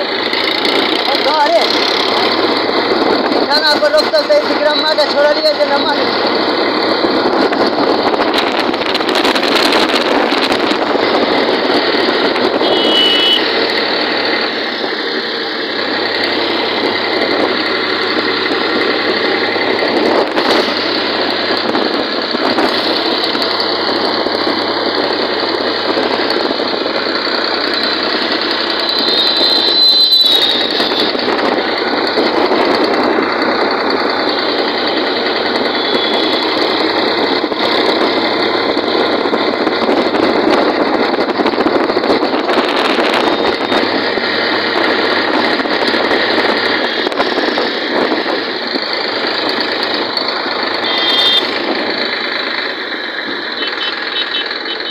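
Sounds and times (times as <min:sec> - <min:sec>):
tractor diesel engine running: 0:00.0 - 0:54.9
high squeal: 0:28.8 - 0:31.1.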